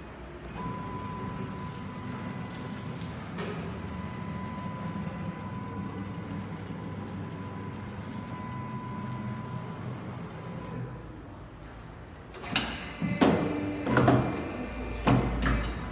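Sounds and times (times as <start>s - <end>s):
hydraulic pump motor humming: 12.3s - 15.9s.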